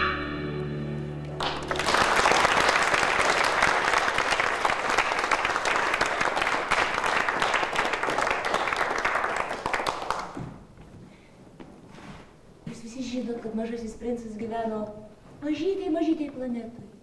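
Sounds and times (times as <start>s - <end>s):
audience applauding: 1.1s - 10.6s.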